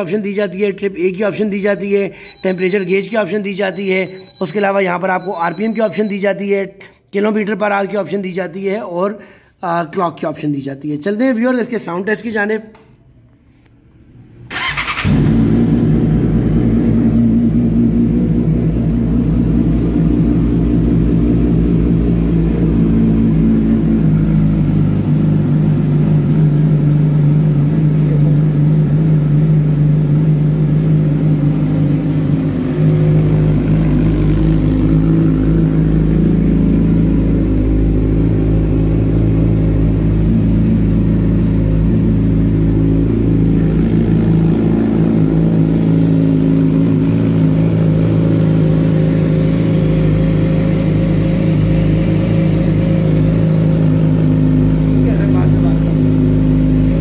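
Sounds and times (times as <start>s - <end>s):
motorcycle engine idling: 14.5s - 57.0s.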